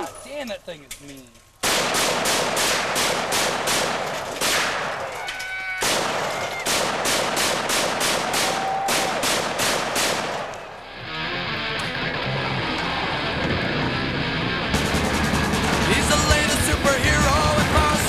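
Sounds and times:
rifle shots cracking: 0:01.6 - 0:10.9.

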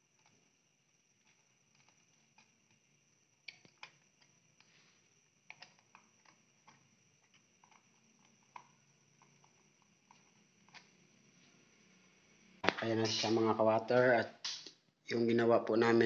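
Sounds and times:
small clicks of screwdriver and wires: 0:01.2 - 0:02.8, 0:03.4 - 0:04.7, 0:05.5 - 0:08.7.

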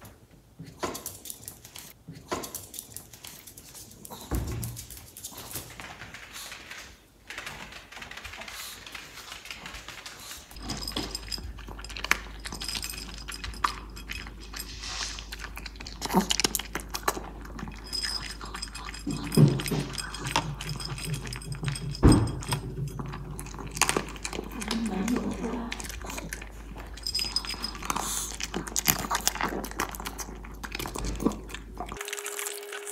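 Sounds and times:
dog crunching food from a bowl: 0:07.9 - 0:32.9.

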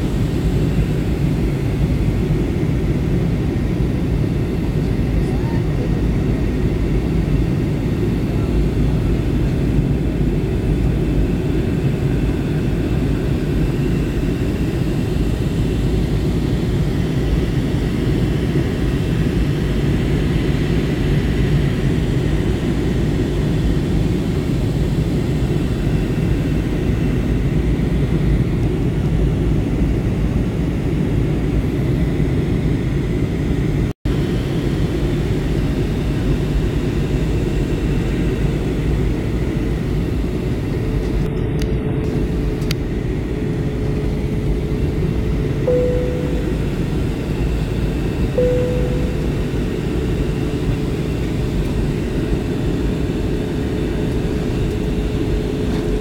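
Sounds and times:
airliner cabin engine roar: 0:00.0 - 0:56.0
faint high whine: 0:43.3 - 0:56.0.

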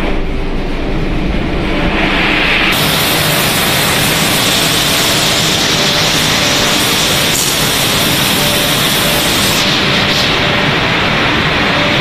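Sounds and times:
machinery hiss with hum: 0:00.0 - 0:12.0.

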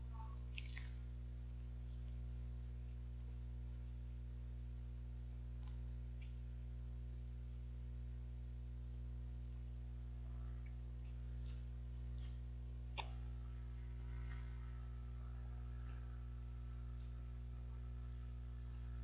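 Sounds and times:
low electrical hum: 0:00.0 - 0:19.0
mouth clicks while eating: 0:00.5 - 0:01.0, 0:05.6 - 0:06.4, 0:10.6 - 0:13.2.

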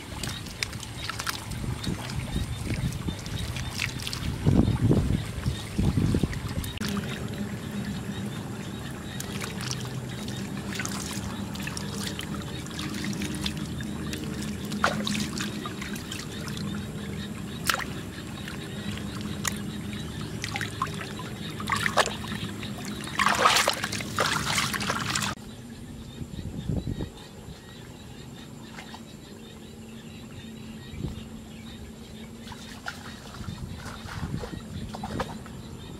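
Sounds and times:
water splashing: 0:00.0 - 0:25.4, 0:32.4 - 0:35.5
water trickling: 0:00.0 - 0:25.4.

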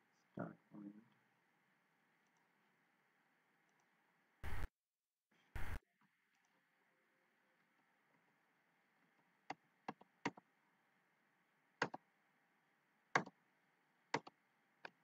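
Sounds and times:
computer mouse clicking: 0:14.2 - 0:15.0.

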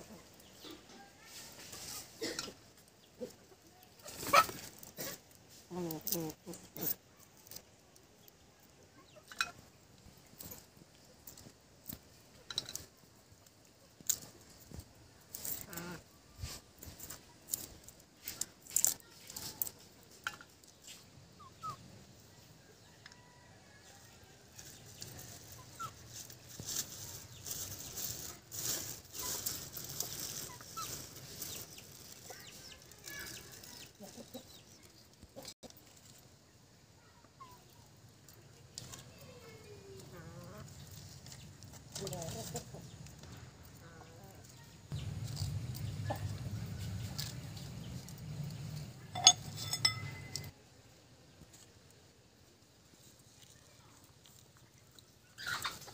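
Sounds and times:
papery garlic skins crackling: 0:00.0 - 0:21.2, 0:24.4 - 0:36.3, 0:37.8 - 0:50.5
plastic bag crinkling: 0:25.0 - 0:34.0.

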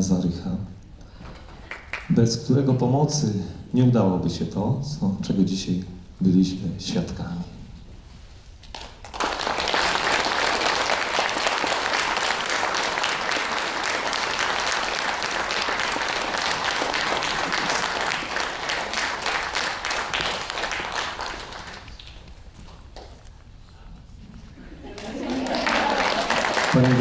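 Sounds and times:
audience applauding: 0:08.7 - 0:22.3, 0:24.9 - 0:27.0.

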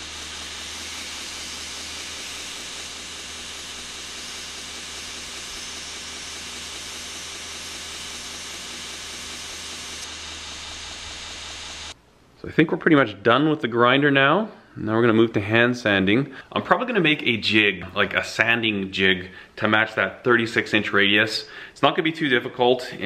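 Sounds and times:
blade grinding on belt: 0:00.0 - 0:12.0
grinder motor hum: 0:00.0 - 0:12.0.

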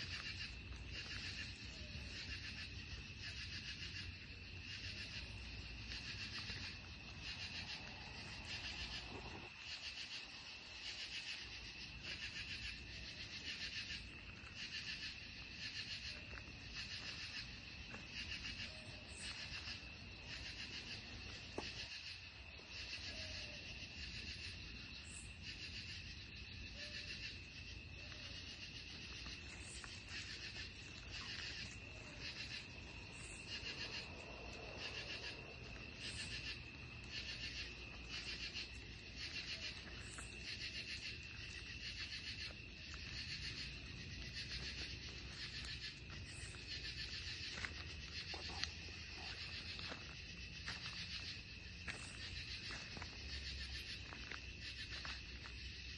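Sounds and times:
insect high trill: 0:00.0 - 0:55.9
pulsing insect call: 0:00.0 - 0:55.9.

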